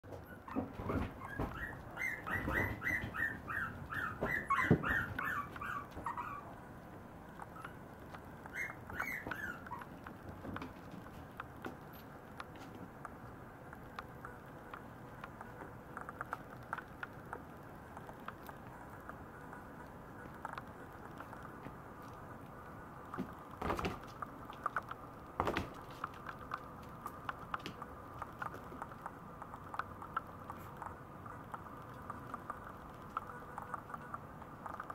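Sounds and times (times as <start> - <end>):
puppy whining: 0.1 - 6.6, 8.4 - 10.1
puppy paws scuffling: 0.1 - 33.9.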